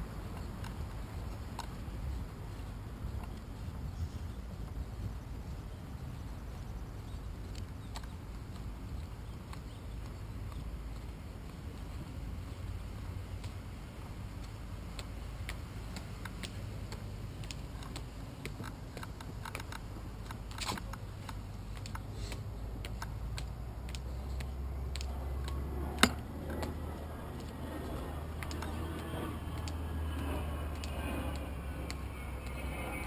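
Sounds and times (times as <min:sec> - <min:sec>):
bicycle clicks and knocks: 0:15.9 - 0:22.0, 0:22.8 - 0:26.8, 0:28.4 - 0:29.8.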